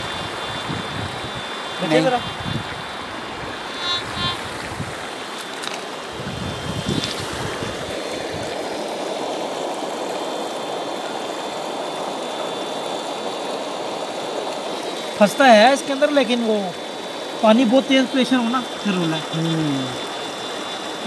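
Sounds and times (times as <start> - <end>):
river water rushing: 0.0 - 21.0.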